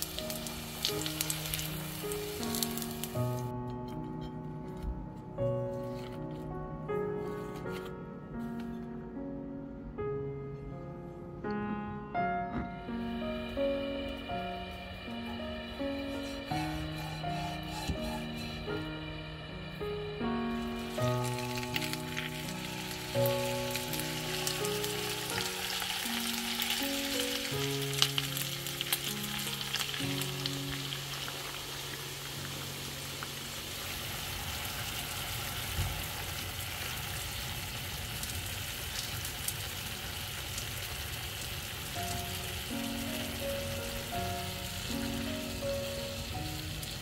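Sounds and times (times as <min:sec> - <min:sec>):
chicken sizzling in frying oil: 0:00.0 - 0:03.4, 0:20.7 - 0:47.0
soft background music: 0:00.0 - 0:36.0, 0:41.9 - 0:47.0.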